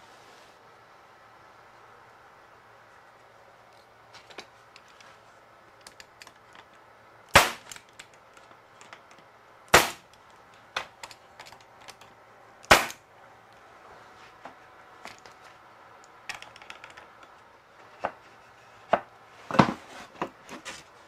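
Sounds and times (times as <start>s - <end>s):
pneumatic stapler firing: 7.3s - 7.8s, 9.7s - 10.1s, 12.7s - 13.0s.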